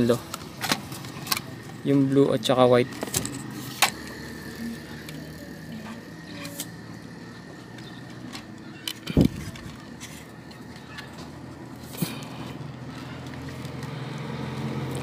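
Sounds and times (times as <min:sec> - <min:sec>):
clicks and rustling of wires: 0:00.0 - 0:01.5, 0:07.6 - 0:12.3
steady background hum: 0:00.0 - 0:15.0.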